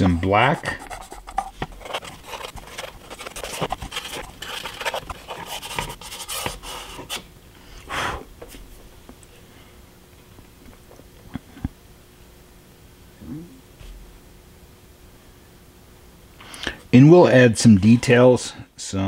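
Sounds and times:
paintbrush scratching on pastel: 0.0 - 7.2.

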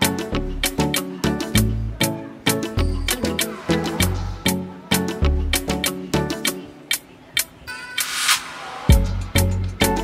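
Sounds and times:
swishing cymbal swell: 3.1 - 4.8
bass and drum hits: 8.9 - 9.9.

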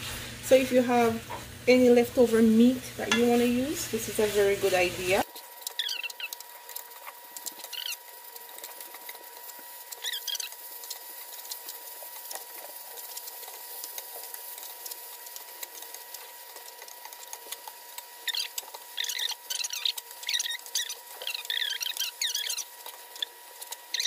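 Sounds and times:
chicken sizzling in a pot: 0.0 - 24.0
short high squeaks: 18.2 - 23.3.

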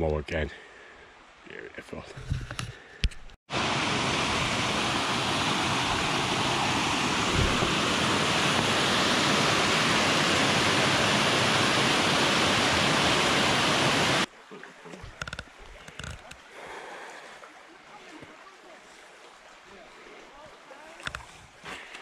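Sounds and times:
water rushing over a weir: 3.5 - 16.3.

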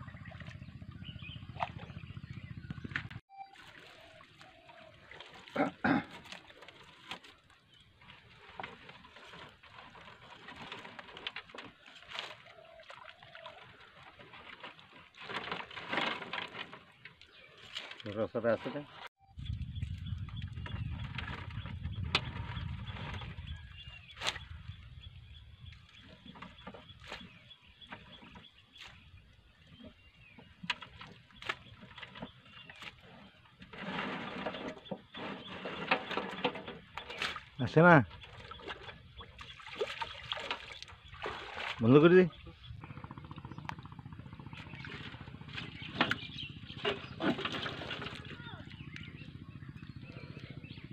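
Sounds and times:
low rumble: 0.0 - 3.2, 19.3 - 26.5, 42.3 - 50.9
twigs rustling and crackling: 3.6 - 18.2, 25.8 - 29.0, 30.6 - 34.7.

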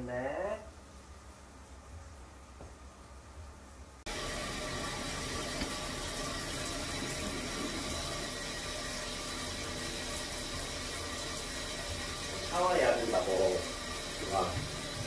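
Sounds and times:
shower water running: 4.0 - 15.0.

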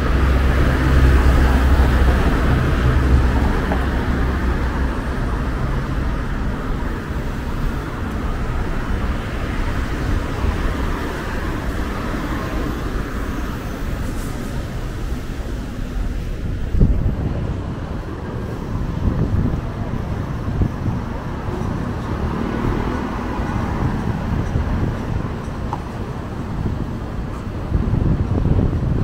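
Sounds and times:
traffic rumble: 0.0 - 29.0.

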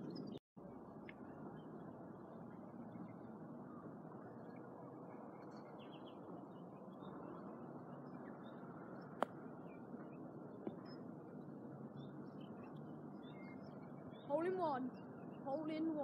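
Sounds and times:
faint outdoor hiss: 0.0 - 16.0
small bird chirps: 12.0 - 16.0.

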